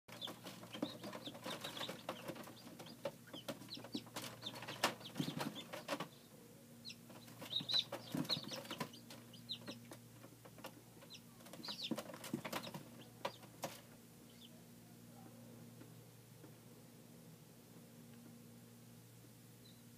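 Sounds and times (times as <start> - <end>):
chicks peeping: 0.1 - 14.7
low steady hum: 0.1 - 19.9.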